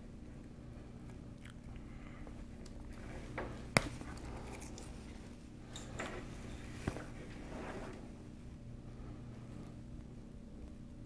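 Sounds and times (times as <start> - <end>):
fingers rustling on cable wires: 2.5 - 8.4.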